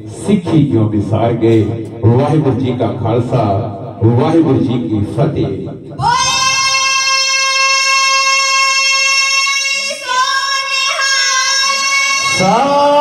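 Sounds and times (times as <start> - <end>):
children singing in unison: 6.0 - 13.0.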